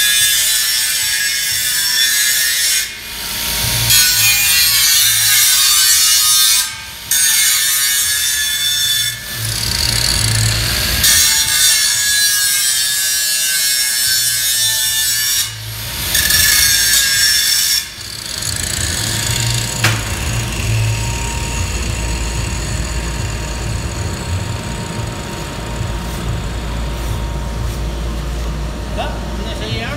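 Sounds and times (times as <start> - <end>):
angle grinder grinding steel: 0.0 - 28.2
low steady hum: 18.4 - 29.9.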